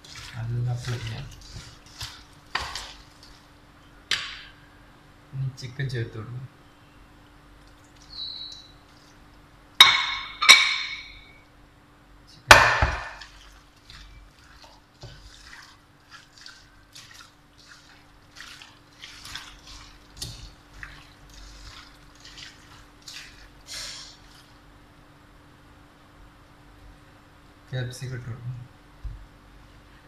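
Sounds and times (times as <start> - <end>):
wet squishing of mixing chicken: 0.0 - 3.8, 7.6 - 9.5, 12.9 - 24.8.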